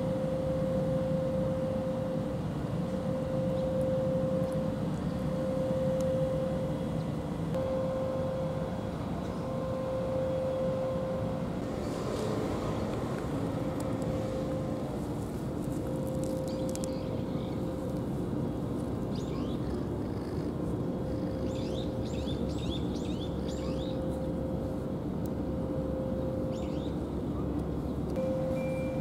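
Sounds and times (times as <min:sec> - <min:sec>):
constant hum: 0:00.0 - 0:29.0
small birds chirping: 0:16.3 - 0:17.7, 0:19.1 - 0:24.1, 0:26.5 - 0:27.0.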